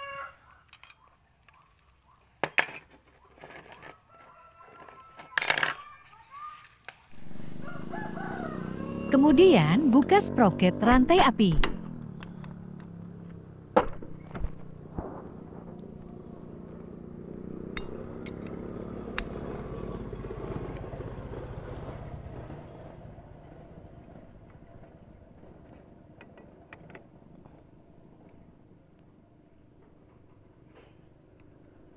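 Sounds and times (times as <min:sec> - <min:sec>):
socket wrench clinking on metal: 0:05.4 - 0:06.1
vehicle engine passing: 0:07.1 - 0:28.2.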